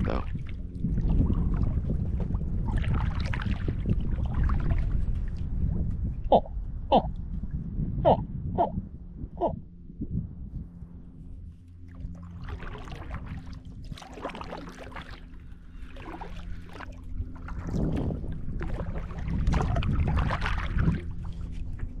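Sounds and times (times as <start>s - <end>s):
paddle strokes splashing in water: 0.0s - 5.6s, 11.6s - 22.0s
steady low hum: 0.0s - 22.0s.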